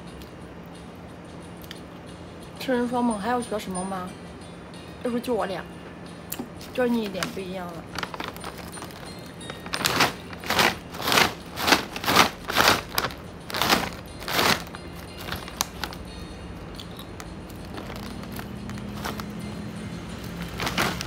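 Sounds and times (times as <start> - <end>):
plastic bag rustling: 6.6 - 16.0, 17.6 - 19.4, 20.4 - 21.0.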